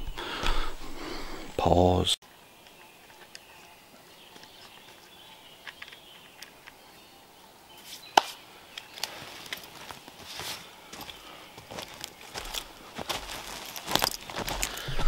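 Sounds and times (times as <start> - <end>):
handling clicks and rustles: 2.6 - 6.9, 7.8 - 15.0.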